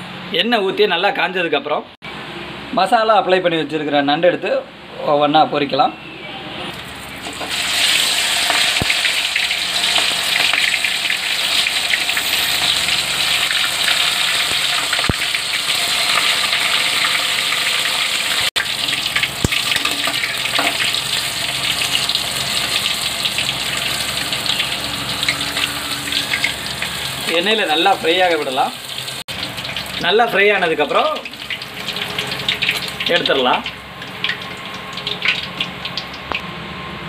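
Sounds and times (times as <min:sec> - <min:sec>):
food deep-frying in oil: 0:06.7 - 0:36.4.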